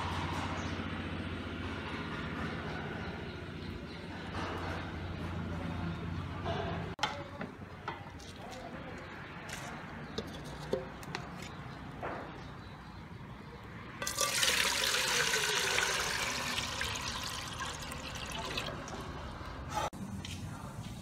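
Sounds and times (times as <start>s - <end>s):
water pouring into metal pot: 14.0s - 19.5s.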